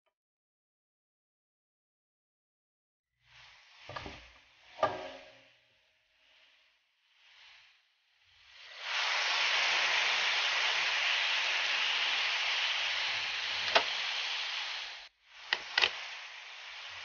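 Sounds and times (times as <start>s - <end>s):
potatoes sizzling in hot oil: 7.0s - 17.0s.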